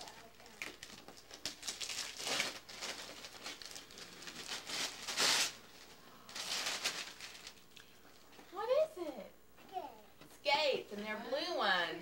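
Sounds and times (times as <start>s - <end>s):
wrapping paper tearing and crumpling: 0.0s - 7.6s.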